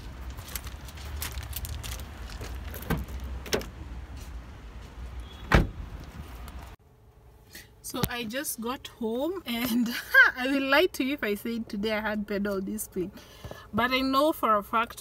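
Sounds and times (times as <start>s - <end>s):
car door slamming shut: 5.4s - 5.8s.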